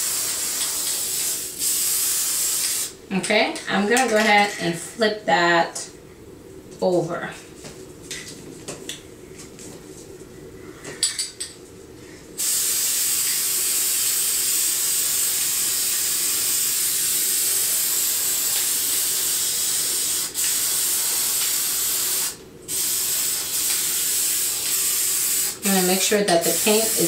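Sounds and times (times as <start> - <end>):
spray paint can hissing: 0.0 - 2.9, 12.4 - 25.7, 26.4 - 27.0.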